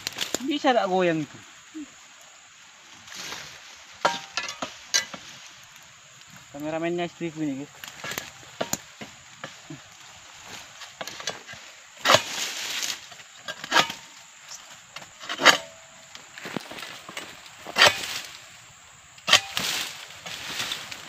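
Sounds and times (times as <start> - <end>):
knife crunching through palm fronds: 7.9 - 18.5, 19.2 - 21.0.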